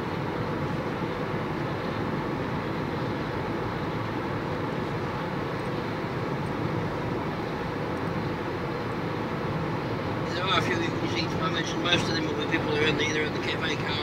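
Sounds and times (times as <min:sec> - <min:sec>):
car engine hum: 0:00.0 - 0:14.0
road and tyre noise: 0:00.0 - 0:14.0.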